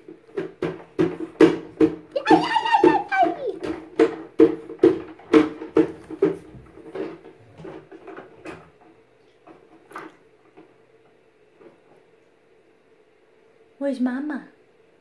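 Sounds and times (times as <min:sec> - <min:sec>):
hand slapping plastic basket: 0:00.4 - 0:06.5.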